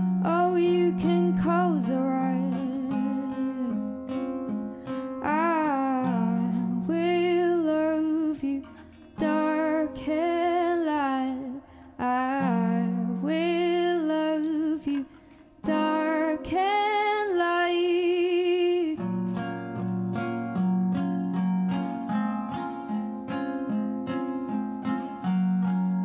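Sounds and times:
classical guitar: 0:00.0 - 0:26.0
woman singing long notes: 0:00.2 - 0:03.9.

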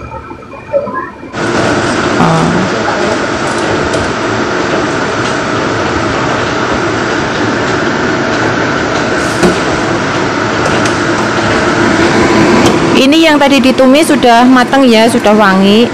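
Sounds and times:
exhaust fan rushing: 0:01.3 - 0:15.9.

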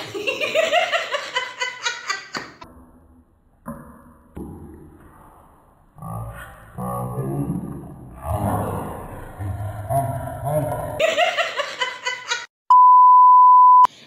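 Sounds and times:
woman laughing: 0:00.0 - 0:02.6, 0:11.0 - 0:12.5.

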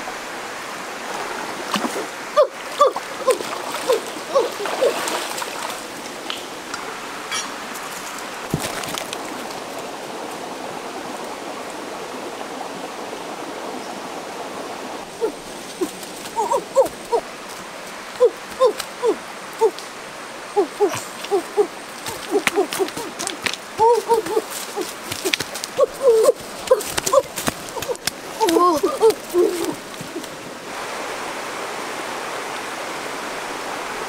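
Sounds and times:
stream water over rocks: 0:00.0 - 0:34.0
short hooting calls: 0:20.5 - 0:30.3.

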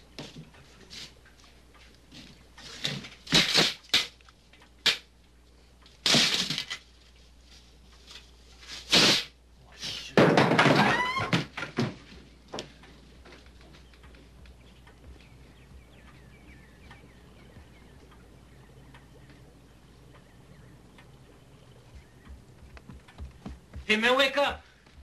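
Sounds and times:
squeaky ticks: 0:13.5 - 0:24.3.

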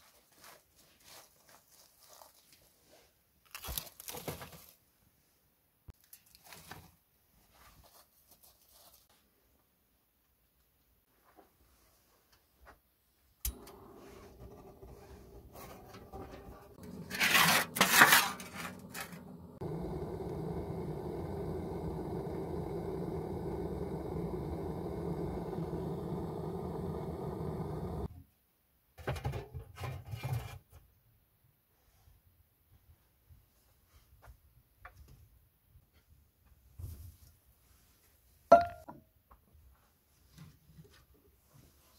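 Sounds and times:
click: 0:13.4 - 0:13.8
gas torch flame rushing: 0:13.5 - 0:28.1
short knocks and scrapes: 0:13.6 - 0:19.6
scraping and rustling: 0:13.6 - 0:19.7.

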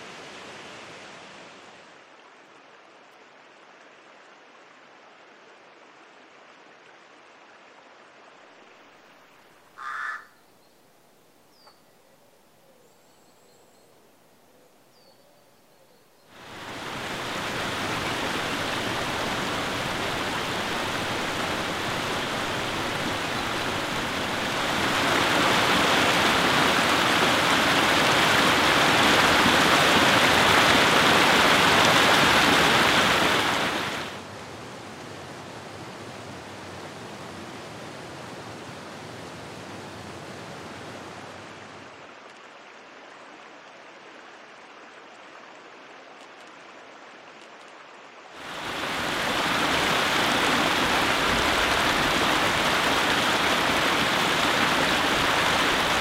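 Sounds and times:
faint creek hiss: 0:00.0 - 0:56.0
waterfall rushing: 0:16.3 - 0:34.3, 0:48.4 - 0:56.0.

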